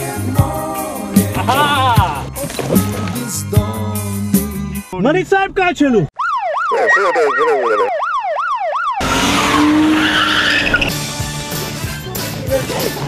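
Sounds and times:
swooping electronic siren tone: 6.2 - 10.9
tyres squealing: 9.0 - 11.0
car engine: 9.0 - 11.8.

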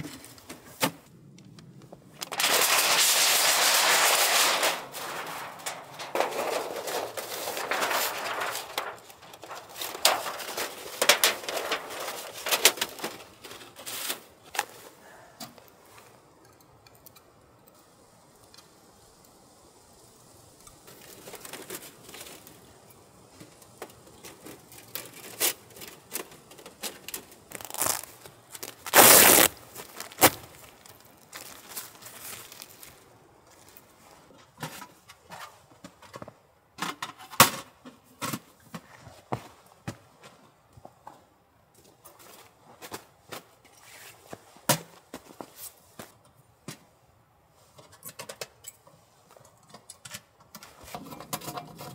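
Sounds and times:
thin metal sheet crinkling: 2.1 - 14.8, 20.8 - 22.8, 23.4 - 33.0, 50.6 - 51.9.

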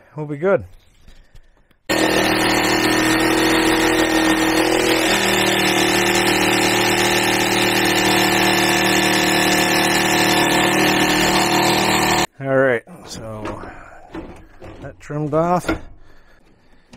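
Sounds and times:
electric jigsaw cutting countertop: 1.9 - 12.3.

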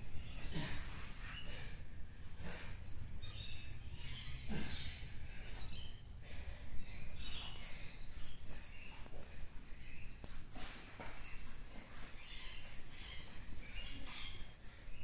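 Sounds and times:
squeaks and scuffs on foam mats: 0.0 - 1.8, 7.3 - 14.5.

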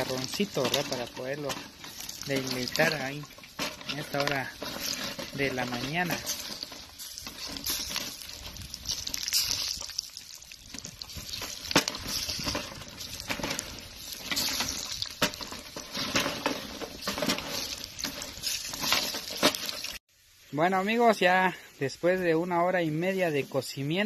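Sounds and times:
wooden paddle stirring: 0.0 - 20.0
fat sizzling and crackling: 0.0 - 24.0.

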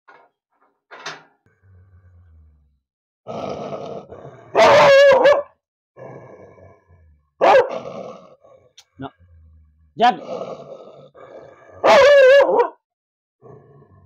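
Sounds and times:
dog growling: 1.5 - 12.7, 13.4 - 14.0
dog barking: 4.5 - 5.6, 7.4 - 7.8, 11.8 - 12.8.

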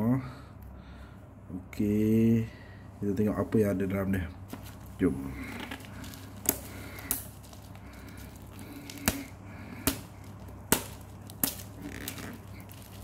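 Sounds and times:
low steady hum: 0.0 - 13.0
shrink-wrap crackling clicks: 4.5 - 13.0.

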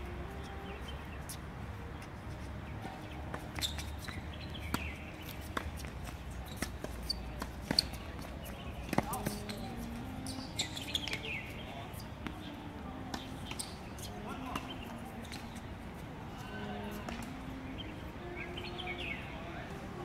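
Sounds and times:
tennis ball struck by rackets: 3.3 - 10.1, 13.1 - 15.6
tennis ball bouncing on court: 3.3 - 11.6, 12.2 - 15.6, 17.0 - 17.4.

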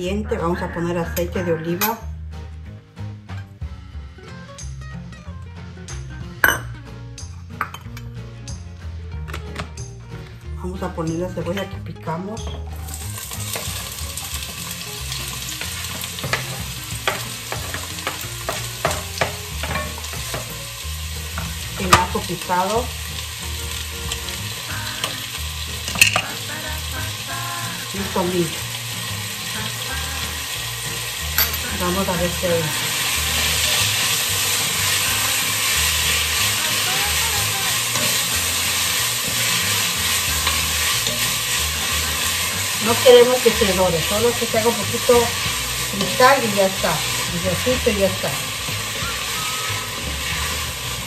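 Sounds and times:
onions sizzling in hot oil: 10.6 - 51.0.

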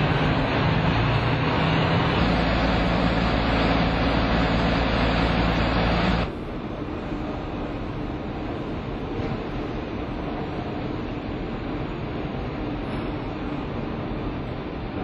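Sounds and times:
truck engine droning on rollers: 0.0 - 6.3.

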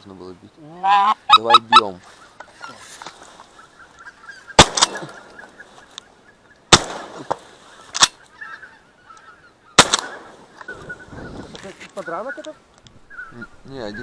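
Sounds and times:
geese honking: 0.6 - 6.0, 7.7 - 14.0
shotgun shots: 4.6 - 5.2, 6.7 - 7.4, 9.8 - 10.5.

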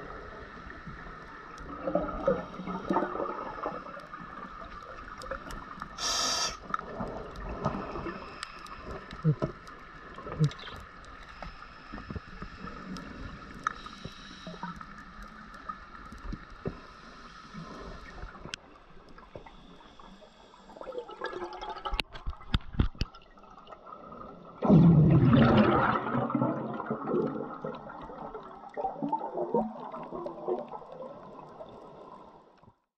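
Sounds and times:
exhaled bubbles underwater: 0.0 - 10.9, 20.6 - 32.4.

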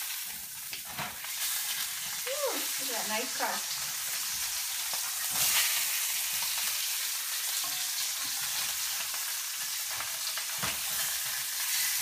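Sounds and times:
fish sizzling in a skillet: 0.0 - 12.0
spatula tapping and scraping pan: 7.6 - 9.1.

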